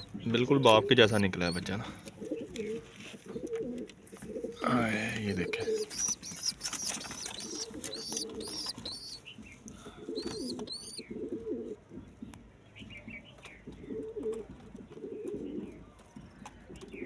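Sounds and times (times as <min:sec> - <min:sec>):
pigeons cooing: 0:00.0 - 0:12.0, 0:13.7 - 0:16.0
quick high chirps: 0:05.9 - 0:09.2.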